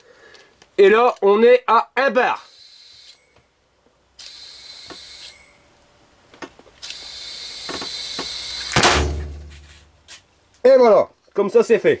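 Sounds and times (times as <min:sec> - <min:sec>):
compressed air hissing into tyre: 0:06.8 - 0:08.8
tyre bursting bang: 0:08.7 - 0:09.7.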